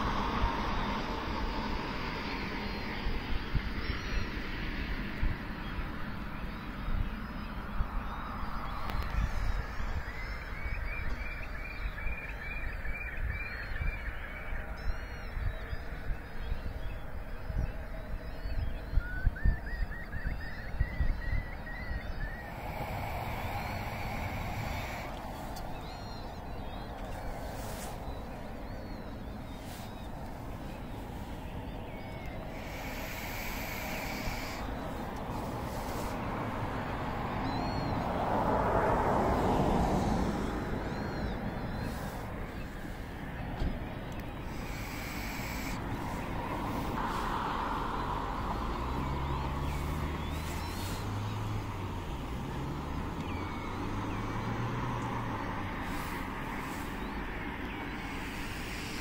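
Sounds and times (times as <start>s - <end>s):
low engine drone: 0.0s - 12.6s, 21.4s - 59.0s
faint high bird calls: 2.0s - 38.2s, 39.2s - 47.4s, 48.3s - 59.0s
low background rumble: 20.7s - 52.6s
constant hiss: 22.5s - 37.2s, 41.8s - 52.4s, 55.8s - 59.0s.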